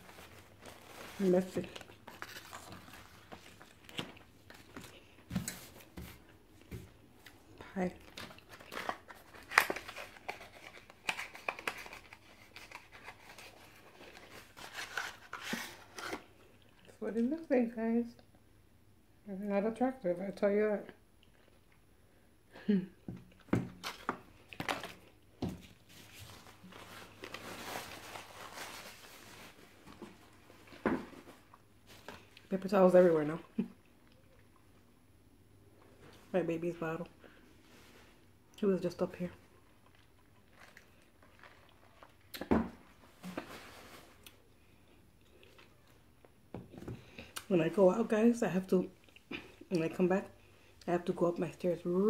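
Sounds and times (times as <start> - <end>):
paper towel rustling: 0.0 - 3.9, 25.7 - 30.4.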